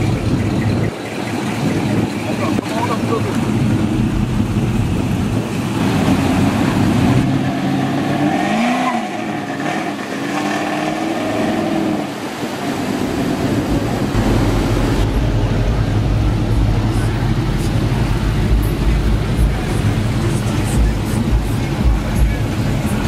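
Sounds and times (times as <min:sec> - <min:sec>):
car engines running: 0:00.0 - 0:23.0
deep low rumble: 0:13.4 - 0:23.0.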